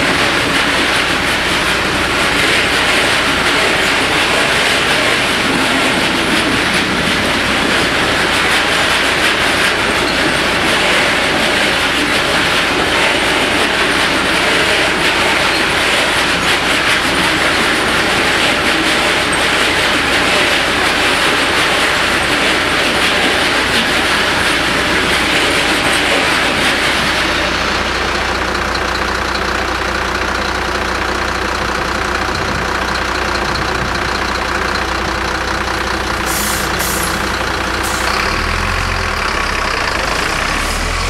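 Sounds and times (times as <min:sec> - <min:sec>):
car engines idling: 0:00.0 - 0:41.0
train wheels rumbling on rails: 0:00.0 - 0:41.0
car engines accelerating: 0:38.1 - 0:41.0.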